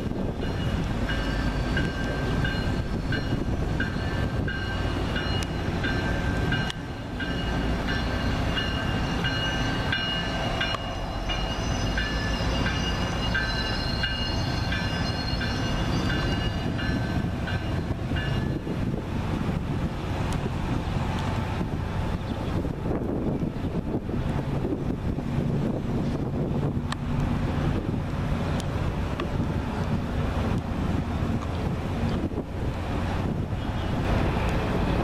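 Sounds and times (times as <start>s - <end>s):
train rumbling: 0.0s - 35.0s
bell ringing: 0.4s - 18.7s.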